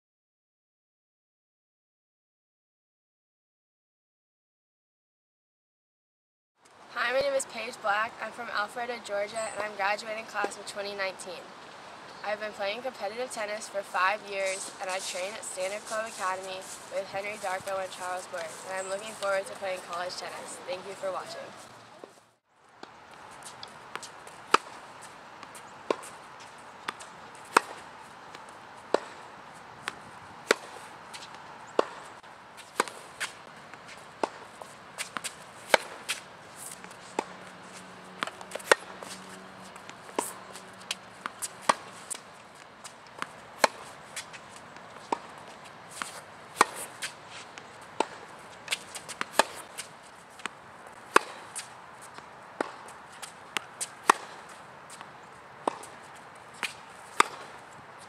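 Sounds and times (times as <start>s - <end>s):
tennis ball hit with rackets: 22.8s - 24.8s, 25.4s - 29.2s, 29.8s - 33.4s, 34.2s - 44.4s, 45.0s - 57.7s.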